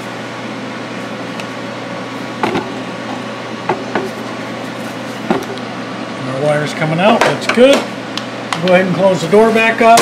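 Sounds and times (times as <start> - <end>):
shop machine humming: 0.0 - 10.0.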